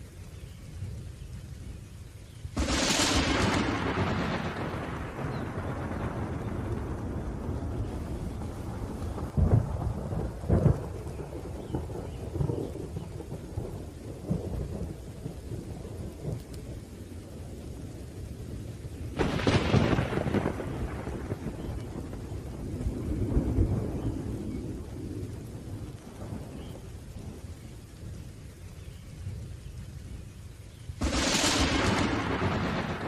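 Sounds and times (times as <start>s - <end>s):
rain falling: 0.0s - 33.0s
low rolling thunder: 2.5s - 33.0s
loud thunderclap: 2.6s - 15.0s, 19.2s - 27.4s, 31.0s - 33.0s.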